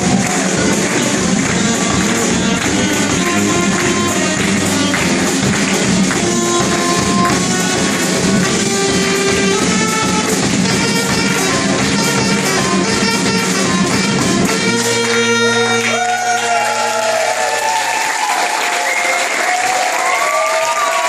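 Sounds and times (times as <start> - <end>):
street band with sousaphone: 0.0 - 16.2
audience applause and cheering: 0.0 - 21.0.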